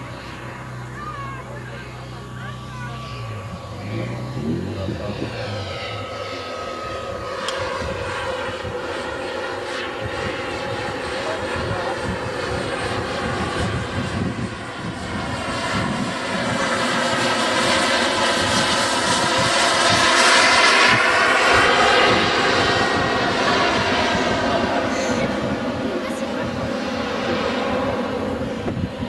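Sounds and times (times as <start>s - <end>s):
model jet turbine whine: 0.0s - 29.0s.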